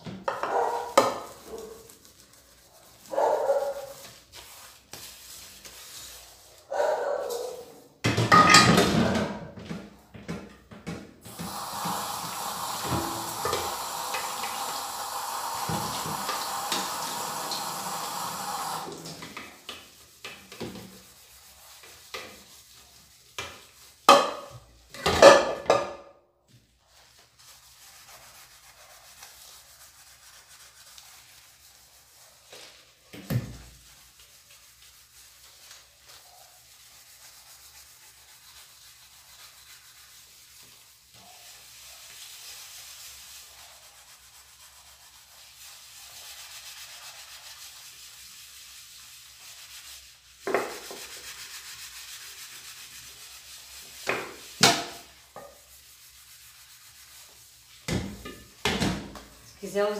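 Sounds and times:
sponge scrubbing a metal pot: 0:00.0 - 0:09.7, 0:11.2 - 0:25.8, 0:26.6 - 0:58.6
metal pot clattering: 0:08.1 - 0:09.4.

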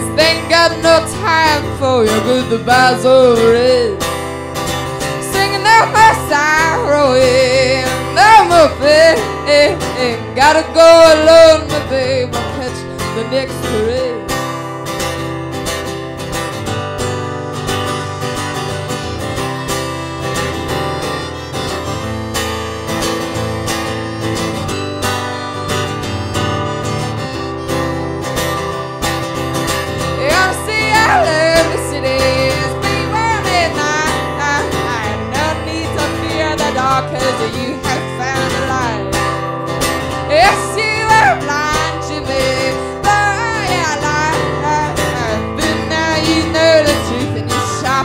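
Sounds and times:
acoustic guitar strumming: 0:00.0 - 0:48.0
harmonica melody: 0:00.0 - 0:48.0.

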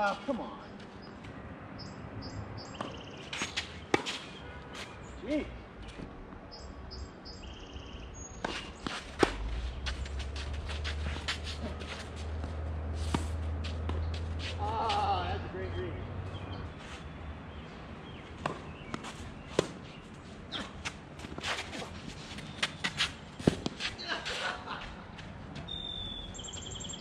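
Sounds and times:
birds chirping: 0:00.0 - 0:11.3, 0:13.5 - 0:20.9, 0:22.3 - 0:24.2, 0:25.1 - 0:27.0
tennis balls bouncing and struck: 0:02.6 - 0:04.4, 0:08.3 - 0:15.0, 0:18.0 - 0:24.0.

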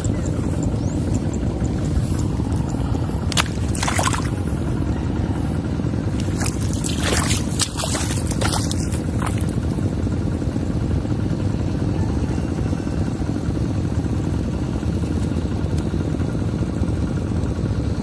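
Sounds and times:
splashing in shallow water: 0:00.0 - 0:04.7, 0:06.1 - 0:09.9
steady low rumble: 0:00.0 - 0:11.9.

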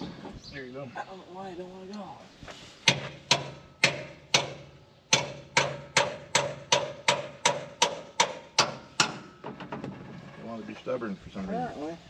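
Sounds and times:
hammer blows ringing on steel: 0:02.9 - 0:09.3.

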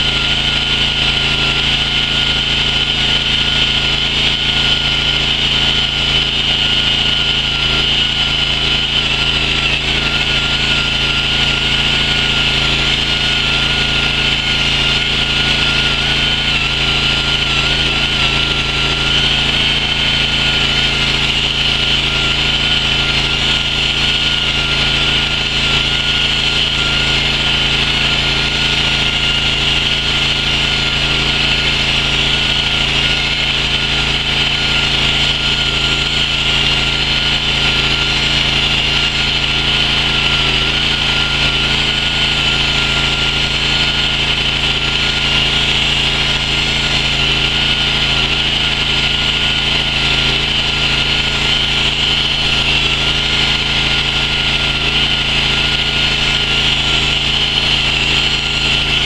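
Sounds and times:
chainsaw cutting stone: 0:00.0 - 0:59.0.

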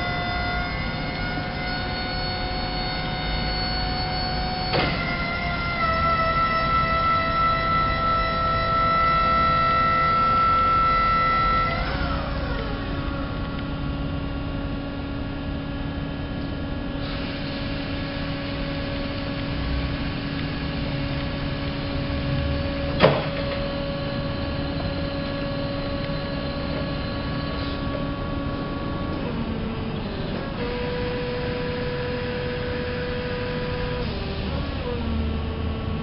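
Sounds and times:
forklift electric whine: 0:00.0 - 0:36.0
sharp clunk: 0:04.7 - 0:05.1, 0:23.0 - 0:23.7.

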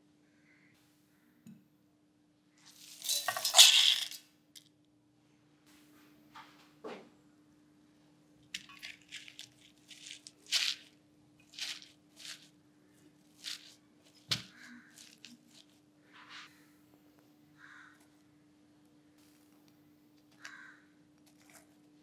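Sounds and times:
herb leaves rustling and crunching: 0:08.6 - 0:15.8.

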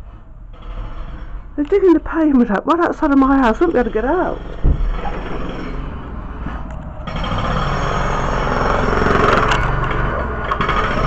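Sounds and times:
roadworks machinery digging: 0:00.0 - 0:11.0.

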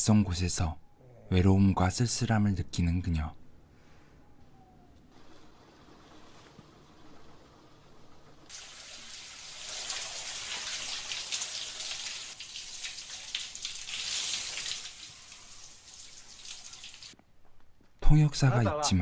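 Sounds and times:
shower head spraying water: 0:08.5 - 0:17.1.

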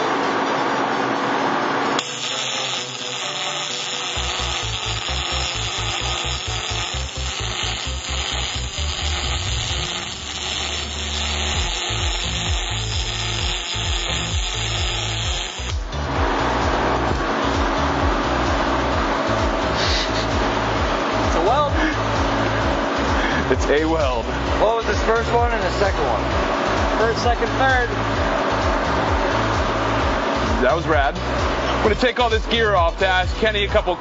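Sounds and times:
background music with low beat: 0:00.0 - 0:34.0
welding arc burning: 0:02.0 - 0:16.2.

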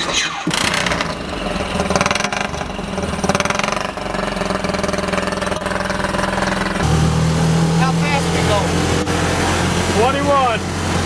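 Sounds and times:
small engine idling: 0:00.2 - 0:07.0.

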